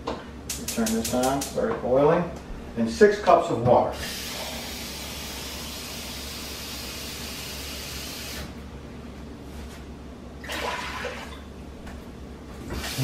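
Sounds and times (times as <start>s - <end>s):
faucet running water into cup: 4.0s - 8.4s.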